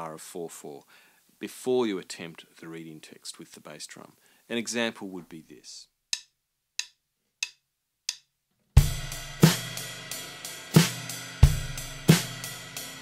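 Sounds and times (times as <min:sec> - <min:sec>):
bass drum beats: 0:08.8 - 0:09.9, 0:10.8 - 0:12.5
cymbal and hi-hat pattern: 0:08.8 - 0:13.0.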